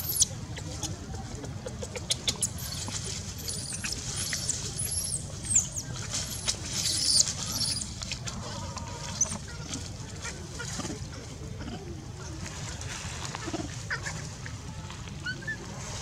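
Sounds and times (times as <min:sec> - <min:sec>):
infant monkey squealing: 0:02.1 - 0:07.8.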